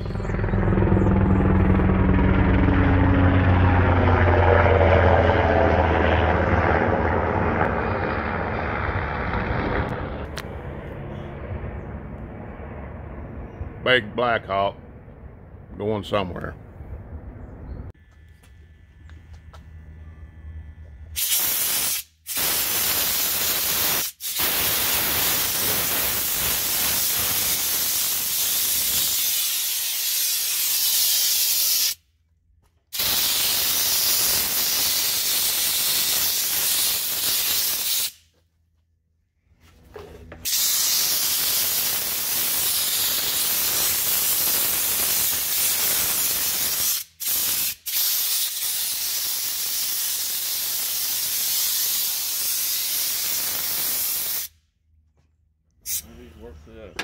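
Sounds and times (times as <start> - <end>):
air blowgun hissing: 40.4 - 54.5.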